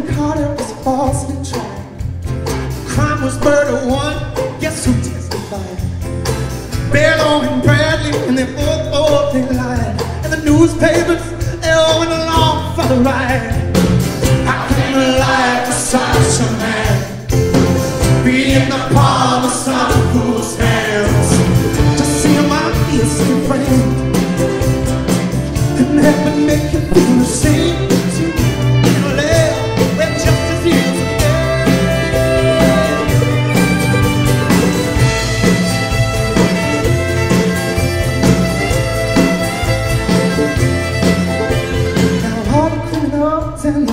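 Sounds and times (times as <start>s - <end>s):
strummed acoustic guitar: 0.2s - 43.3s
people singing: 14.2s - 17.3s, 18.0s - 23.9s, 25.9s - 33.8s
violin playing melody: 28.3s - 42.4s.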